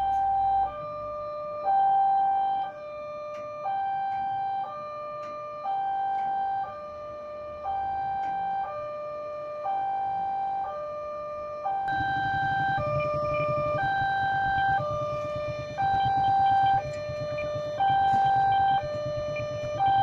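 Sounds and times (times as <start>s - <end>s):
two-tone level crossing alarm: 0.0s - 20.0s.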